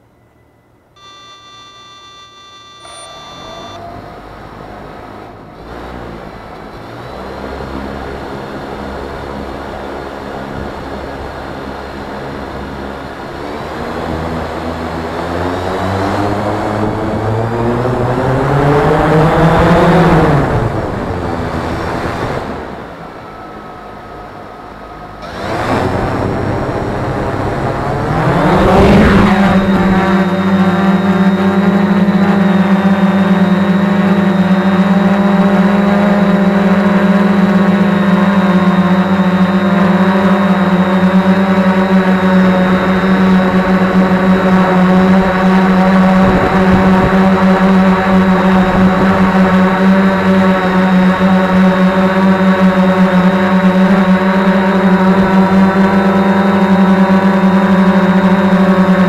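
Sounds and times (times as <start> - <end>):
drone motors whining: 0.9 - 59.0.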